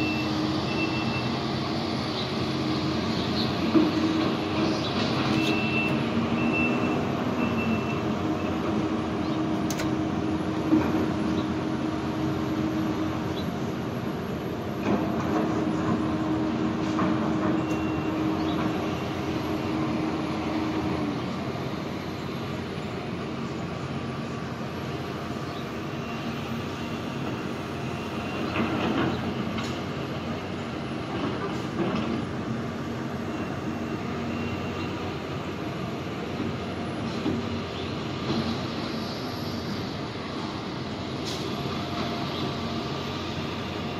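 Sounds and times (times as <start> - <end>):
engines rumbling: 0.0 - 43.9.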